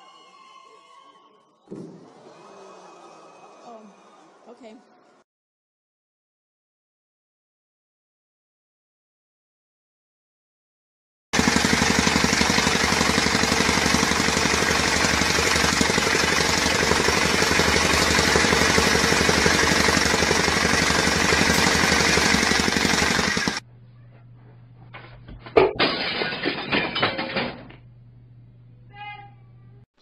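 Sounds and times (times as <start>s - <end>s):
jackhammer hammering: 11.4s - 23.6s
faint low hum: 27.6s - 29.8s.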